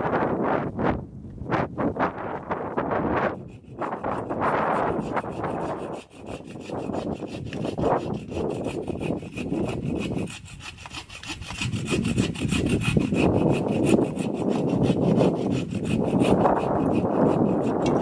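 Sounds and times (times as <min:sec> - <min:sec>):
bow saw rasping through branch: 0:02.7 - 0:18.0.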